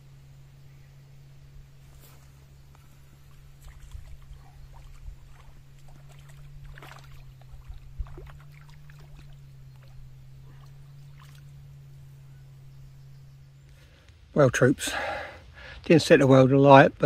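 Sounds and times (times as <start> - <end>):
steady low hum: 0.0 - 17.0
water splashing and sloshing: 2.2 - 12.2.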